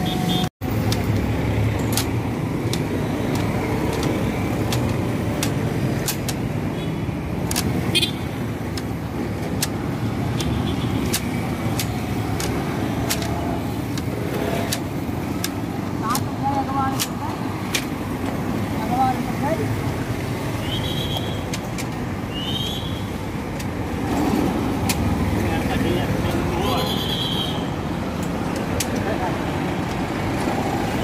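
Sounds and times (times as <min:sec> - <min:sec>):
street traffic: 0:00.0 - 0:31.0
sharp clicks: 0:00.6 - 0:18.7, 0:20.6 - 0:22.8, 0:23.4 - 0:25.7, 0:28.1 - 0:29.2.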